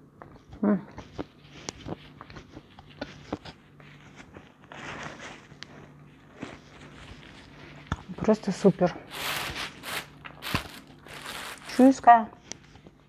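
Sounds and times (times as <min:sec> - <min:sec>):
plastic bag rustling: 0:03.5 - 0:12.8.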